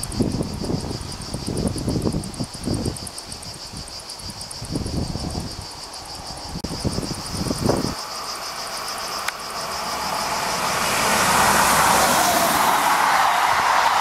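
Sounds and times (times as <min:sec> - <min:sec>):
train wheels rushing on rails: 0:06.7 - 0:14.0.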